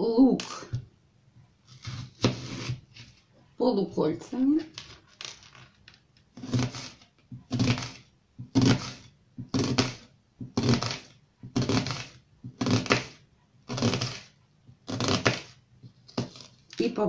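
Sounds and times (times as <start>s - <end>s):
knife slicing onion on cutting board: 1.7s - 2.9s, 6.4s - 16.5s.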